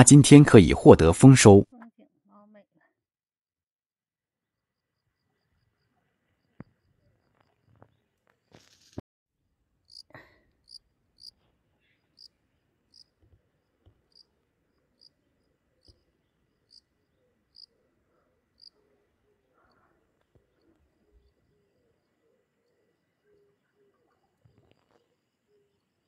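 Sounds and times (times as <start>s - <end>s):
insect chirping: 10.6s - 11.3s, 12.9s - 13.1s, 15.8s - 16.9s.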